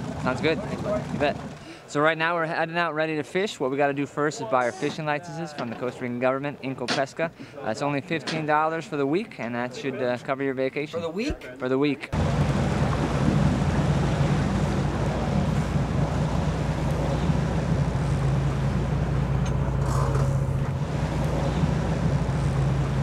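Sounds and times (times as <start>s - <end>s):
boat engine droning: 0.0s - 1.7s, 12.2s - 23.0s.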